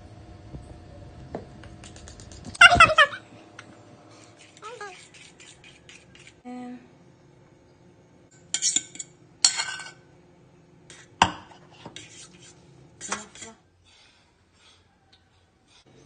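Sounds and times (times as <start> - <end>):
metal spoon scraping ceramic bowl: 4.3 - 6.4.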